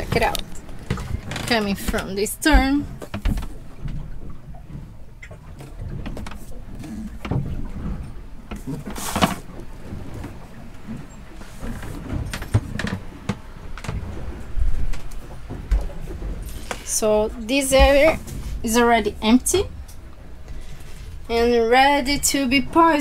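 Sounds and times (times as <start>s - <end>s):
knocks and rustles: 0.0s - 16.9s.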